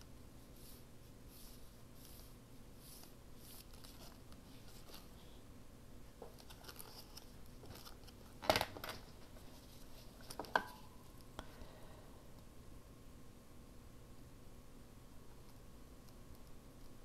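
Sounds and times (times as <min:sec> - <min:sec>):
paper rustling: 0:02.9 - 0:05.2, 0:06.3 - 0:10.5.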